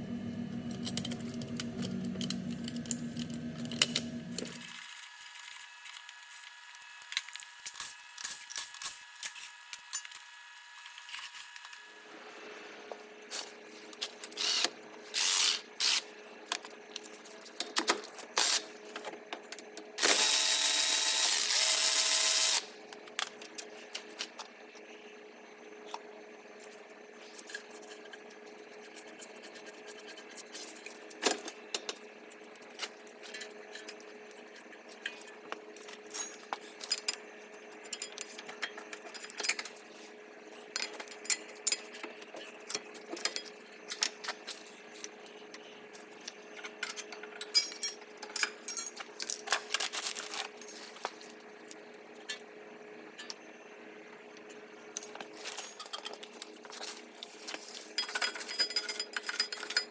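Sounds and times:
steady hum: 0.0 - 5.6
cordless drill running: 14.4 - 16.0, 20.0 - 22.7
metal tools clicking and clinking: 36.1 - 37.2, 46.6 - 49.5, 55.4 - 56.4, 58.0 - 59.9.

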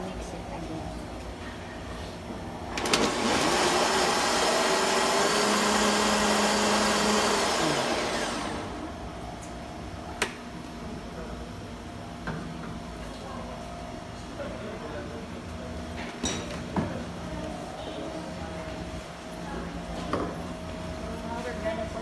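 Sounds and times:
blender running: 2.7 - 9.0.

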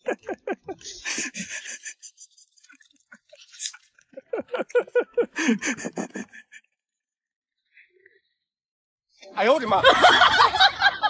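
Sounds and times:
chewing and mouth smacks: 2.3 - 4.3.

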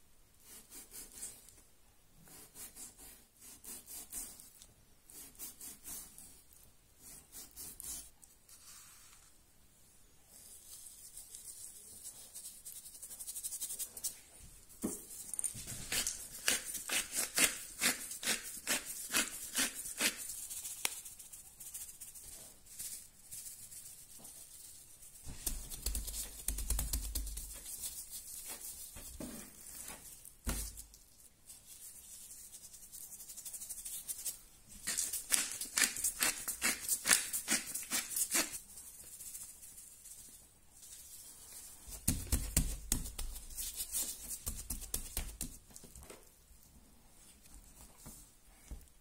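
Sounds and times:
seasoning rubbed into meat: 15.3 - 29.0, 31.5 - 45.6.

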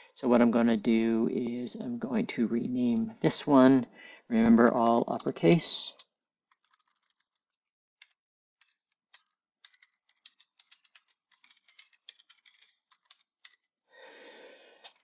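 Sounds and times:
computer keyboard typing: 4.7 - 13.6.

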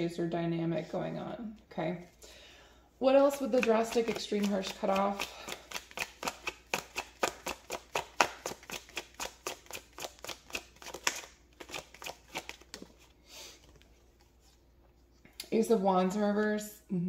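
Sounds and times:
cards being shuffled: 3.3 - 14.4.

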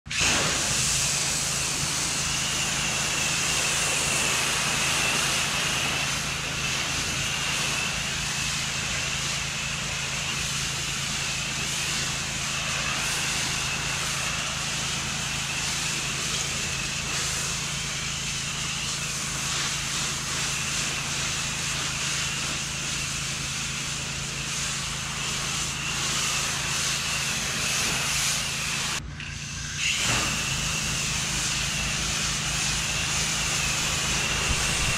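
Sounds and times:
pressure washer engine drone: 0.0 - 34.9
high-pressure water jet hissing: 0.1 - 34.9.

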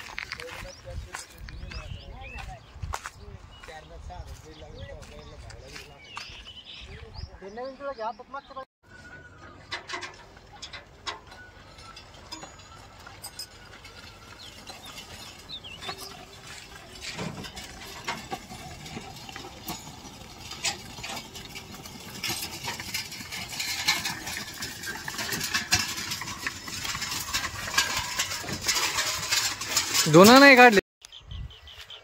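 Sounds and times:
hooves clicking on pavement: 0.0 - 7.4, 11.6 - 30.6
cart rattling: 8.9 - 30.8.

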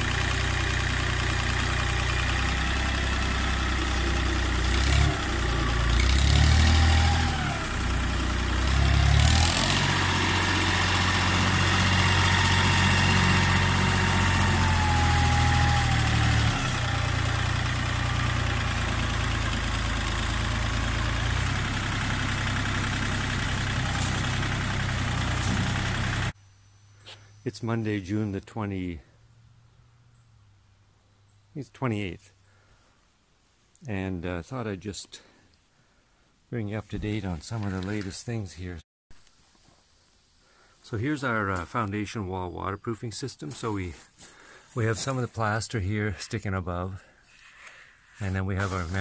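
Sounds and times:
tractor diesel engine under load: 0.0 - 26.4, 46.9 - 49.0.

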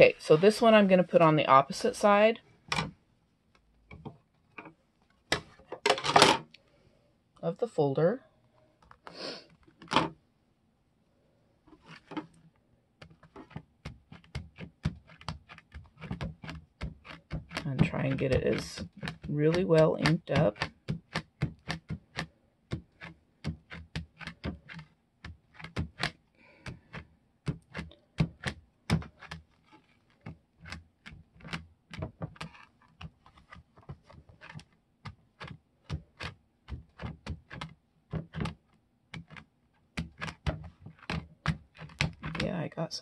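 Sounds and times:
ink pad tapping on plastic: 13.0 - 29.5.

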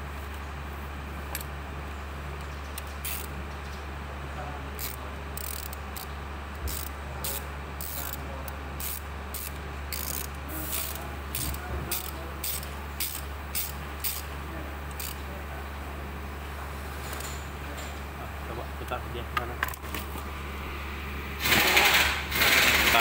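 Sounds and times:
steady low hum: 0.0 - 23.0
ratchet wrench clicking: 2.8 - 3.3, 4.8 - 8.2, 8.8 - 14.3, 14.9 - 15.2.

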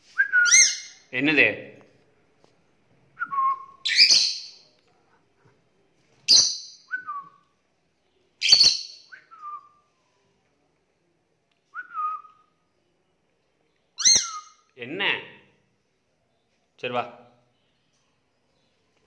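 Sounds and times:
lovebird shrill calls: 0.4 - 1.0, 3.8 - 4.6, 8.4 - 9.1, 14.0 - 14.6.

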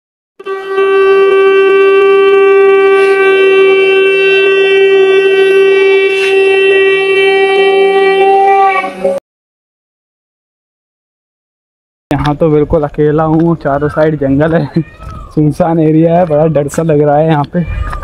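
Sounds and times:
conch shell blown: 0.4 - 9.2.

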